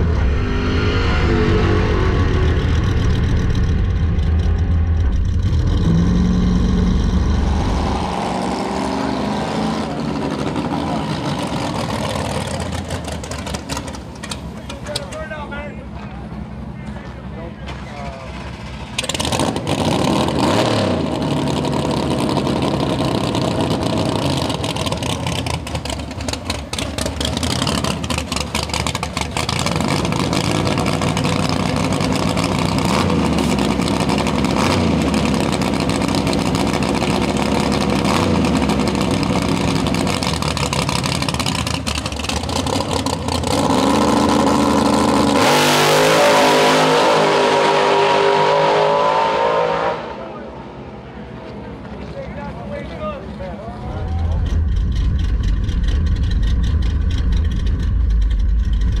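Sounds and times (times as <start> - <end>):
drag car engine revving: 0.0 - 15.3, 18.1 - 51.0, 53.3 - 59.0.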